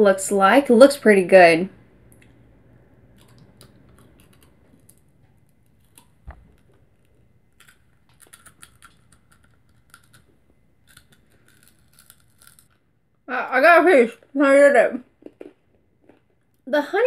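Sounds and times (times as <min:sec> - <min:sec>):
snack bar crackling: 0:03.0 - 0:12.9.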